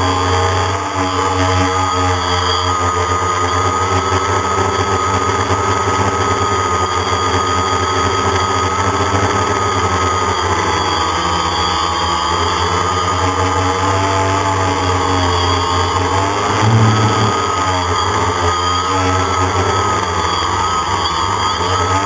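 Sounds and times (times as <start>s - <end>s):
wind rumbling on microphone: 16.4s - 17.6s
drone motors whining: 16.4s - 17.7s.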